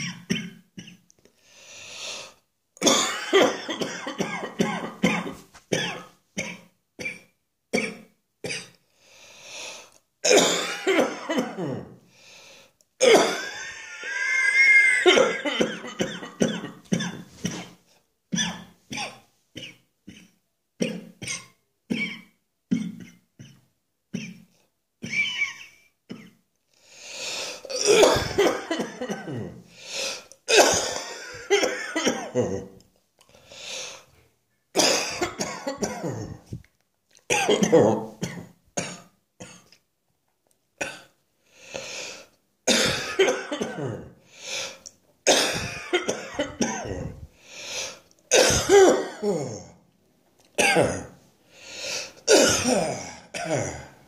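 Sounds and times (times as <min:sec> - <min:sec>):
person coughing: 0:00.0 - 0:01.1, 0:02.8 - 0:08.8, 0:10.2 - 0:12.0, 0:13.0 - 0:13.8, 0:15.0 - 0:17.8, 0:18.4 - 0:26.4, 0:27.6 - 0:32.8, 0:34.8 - 0:36.6, 0:37.3 - 0:39.8, 0:42.7 - 0:47.3, 0:47.9 - 0:49.8, 0:50.6 - 0:51.2, 0:51.9 - 0:54.0.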